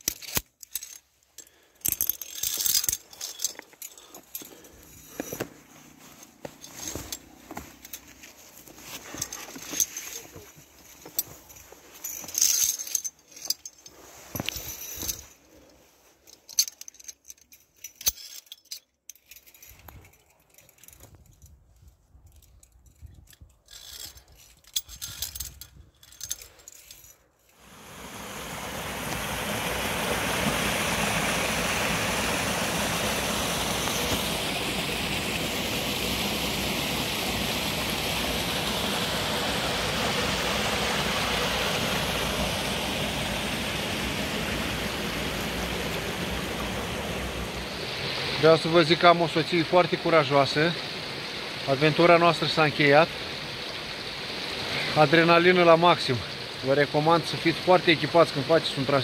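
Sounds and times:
metal carabiners clinking: 0.0s - 27.6s
footsteps on rock and leaves: 1.5s - 15.7s
stream flowing over rocks: 27.6s - 59.0s.

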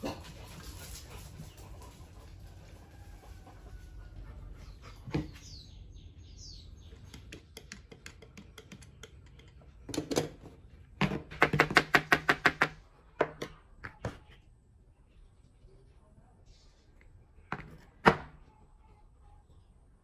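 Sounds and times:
scattered taps and clicks: 7.0s - 9.6s.

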